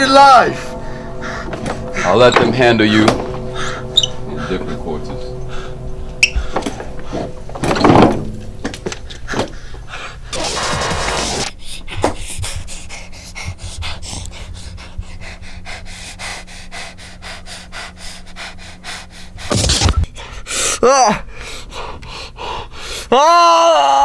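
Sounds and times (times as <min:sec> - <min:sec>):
man breathing hard: 0:00.4 - 0:02.1, 0:03.3 - 0:04.6, 0:05.3 - 0:07.6, 0:09.1 - 0:10.4, 0:11.6 - 0:23.1
man's pained cry: 0:23.1 - 0:24.0.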